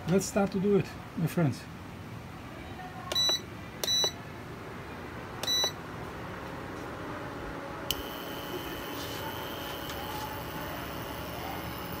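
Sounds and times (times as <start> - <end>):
stove touch control beep: 3.1 - 4.2, 5.4 - 5.8
high-pitched hob whine: 7.0 - 12.0.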